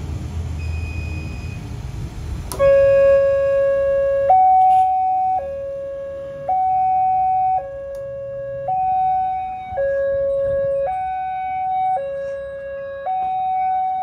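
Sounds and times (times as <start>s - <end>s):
two-tone electronic warning chime: 0.6s - 1.6s, 2.6s - 14.0s.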